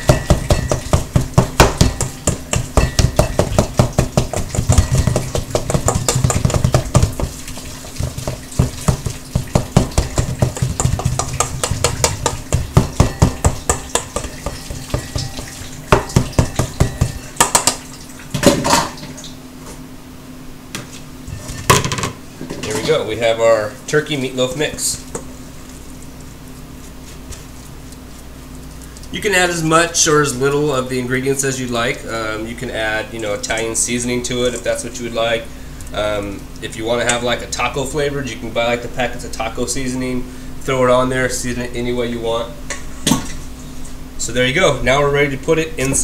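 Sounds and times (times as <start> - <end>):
utensil scraping mixing bowl: 0.0 - 17.2.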